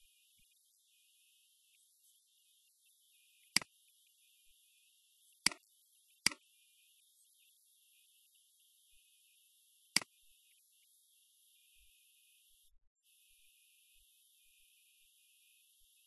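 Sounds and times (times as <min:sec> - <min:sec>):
computer mouse clicks: 0:03.5 - 0:03.7, 0:05.4 - 0:05.6, 0:06.2 - 0:06.4.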